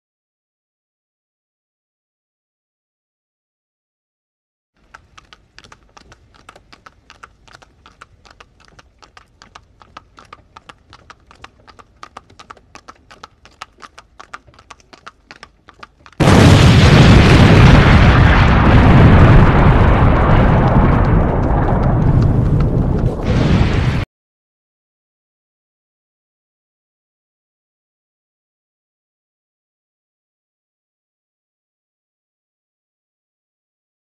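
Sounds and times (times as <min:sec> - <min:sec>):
horse hooves trotting: 0:04.8 - 0:16.6, 0:20.2 - 0:23.3
loud rumbling explosion: 0:16.2 - 0:24.0.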